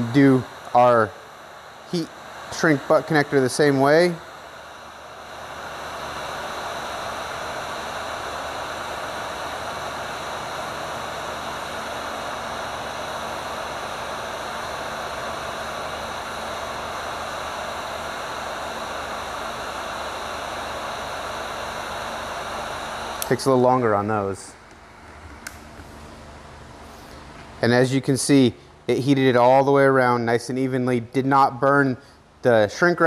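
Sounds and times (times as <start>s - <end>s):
heat gun blowing air: 0.0s - 24.1s.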